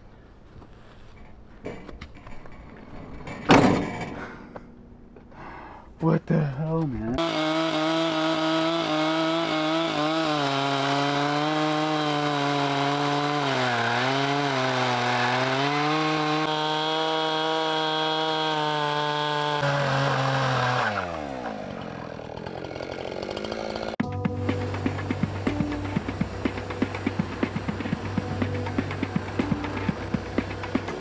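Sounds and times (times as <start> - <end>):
chainsaw cutting log: 7.2 - 31.0.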